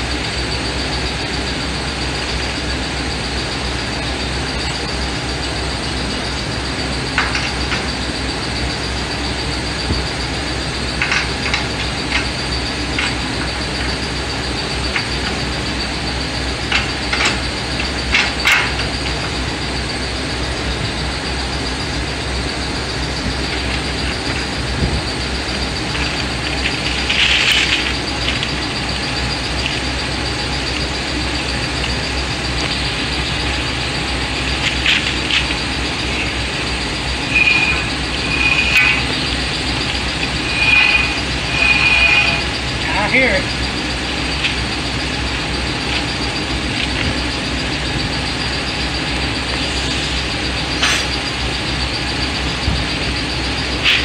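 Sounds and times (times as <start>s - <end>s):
mechanical drone with low hum: 0.0s - 54.0s
scraping rattle: 23.3s - 47.2s
metal parts and tools clinking: 34.5s - 43.2s.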